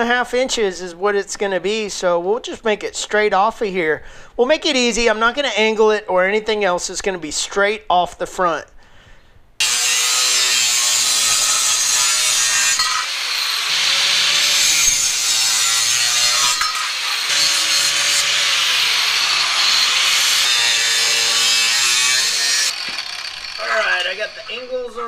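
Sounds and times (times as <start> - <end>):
angle grinder cutting metal: 9.6 - 25.0.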